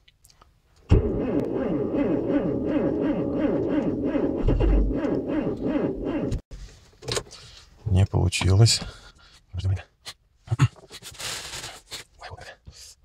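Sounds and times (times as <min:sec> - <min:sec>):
starter motor cranking engine: 0:00.9 - 0:06.4.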